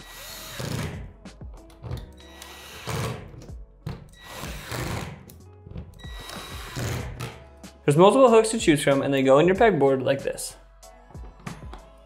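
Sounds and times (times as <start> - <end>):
cordless drill driving screws: 0.0 - 1.0, 1.9 - 3.5, 4.2 - 5.3, 6.0 - 7.3
background music: 0.0 - 12.0.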